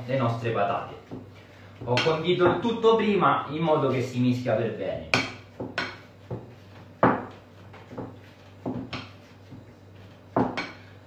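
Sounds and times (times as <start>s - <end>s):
potato masher knocking bowl: 0.8s - 2.9s, 10.3s - 10.9s.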